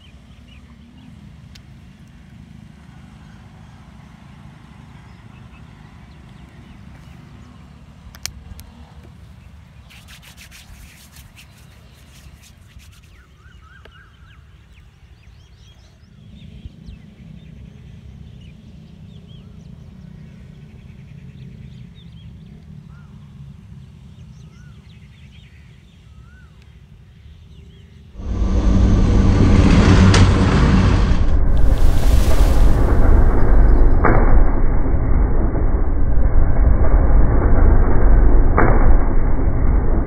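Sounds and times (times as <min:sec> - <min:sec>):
wind rumbling on microphone: 0:28.2 - 0:40.0.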